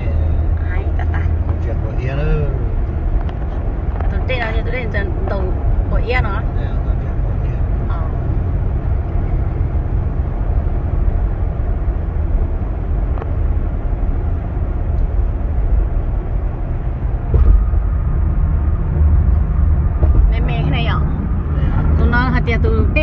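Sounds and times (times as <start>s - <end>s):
car cabin road and engine noise: 0.0s - 23.0s
thump in car: 17.2s - 18.0s, 19.2s - 20.4s.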